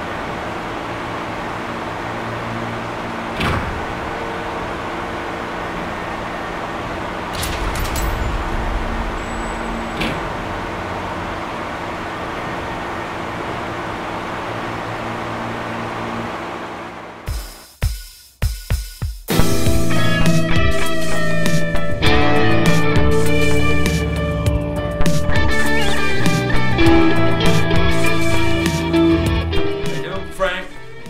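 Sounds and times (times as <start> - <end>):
droning machinery hum: 0.0 - 17.6, 19.3 - 31.0
short clatter: 7.3 - 11.4.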